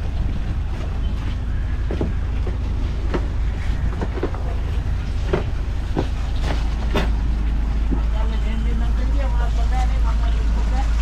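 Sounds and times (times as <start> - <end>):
low engine rumble: 0.0 - 11.0
knocks and clunks: 1.8 - 8.2.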